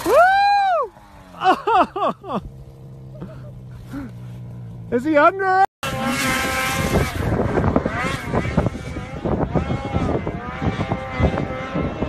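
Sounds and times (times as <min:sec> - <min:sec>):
snowmobile engine at high revs: 0:00.0 - 0:12.0
wind buffeting microphone: 0:05.8 - 0:12.0.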